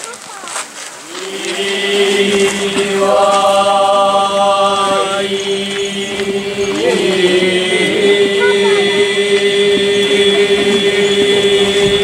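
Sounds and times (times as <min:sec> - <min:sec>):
voices chanting: 0:01.0 - 0:12.0.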